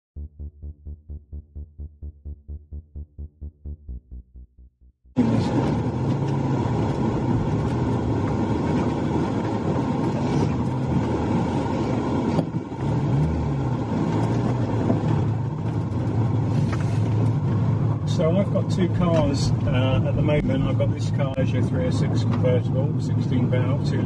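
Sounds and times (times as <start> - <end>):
car engine: 0.2 - 24.0
road noise: 5.2 - 24.0.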